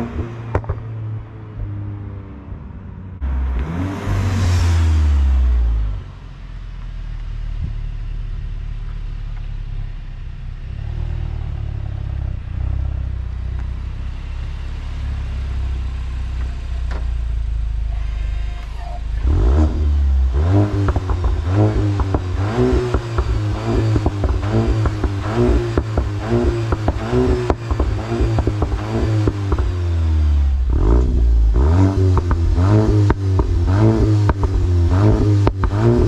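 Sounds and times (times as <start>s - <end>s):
engine revving: 0.0s - 0.8s, 3.2s - 6.2s, 8.4s - 36.0s
exhaust pops and crackles: 0.0s - 0.9s, 6.7s - 10.0s, 12.1s - 14.7s, 15.8s - 17.7s, 18.6s - 30.1s, 30.7s - 36.0s
car engine idling: 3.0s - 36.0s.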